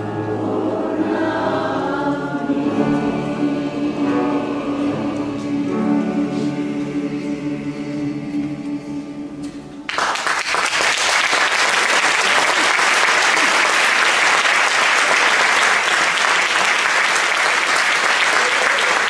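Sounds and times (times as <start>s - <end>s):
mixed choir singing: 0.0s - 9.9s
audience applauding: 9.9s - 19.0s.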